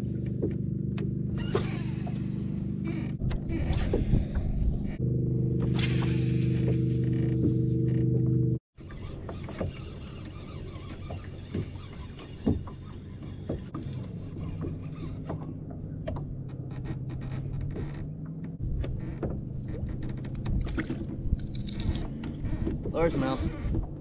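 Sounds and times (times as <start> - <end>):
fishing reel whirring: 8.8 - 13.5.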